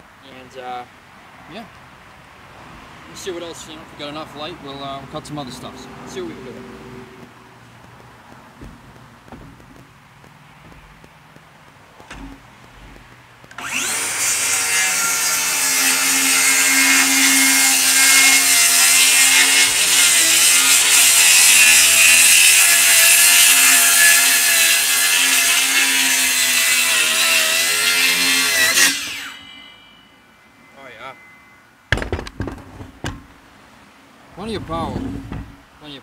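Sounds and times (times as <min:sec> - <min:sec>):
circular saw cutting wood: 0:13.5 - 0:31.6.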